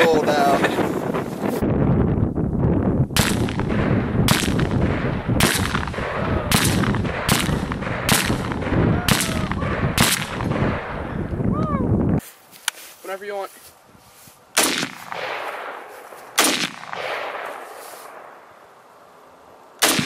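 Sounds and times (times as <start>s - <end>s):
rifle shots: 3.2s - 11.0s, 14.6s - 18.3s, 19.8s - 20.0s.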